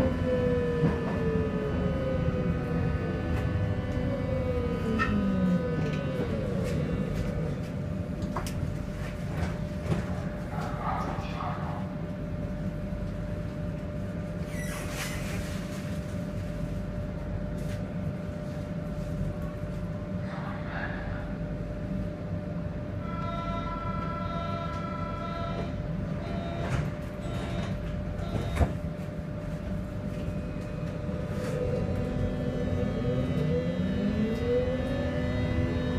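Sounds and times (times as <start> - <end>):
whining tones: 0.0 - 8.8, 30.0 - 35.9
train wheels rumbling on rails: 0.0 - 14.2, 23.3 - 35.9
constant hum: 0.0 - 35.9.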